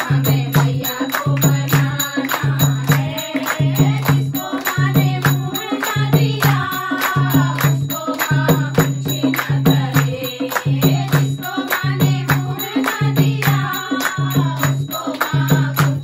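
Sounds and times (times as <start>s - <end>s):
hand claps: 0.0s - 16.0s
hand drum beat: 0.0s - 16.0s
women singing devotional song: 0.0s - 16.0s.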